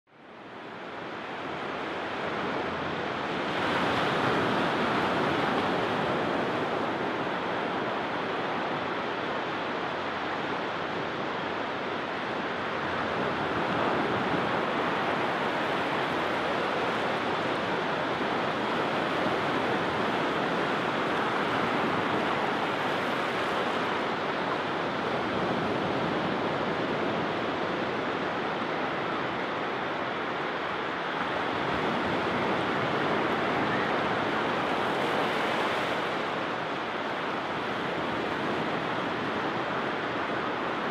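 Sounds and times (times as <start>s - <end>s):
waves breaking on beach: 0.2s - 40.9s.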